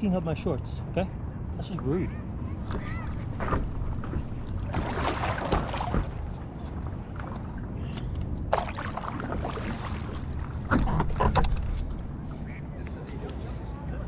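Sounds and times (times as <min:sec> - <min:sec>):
steady low rumble: 0:02.3 - 0:14.0
paddle strokes splashing water: 0:02.8 - 0:12.1.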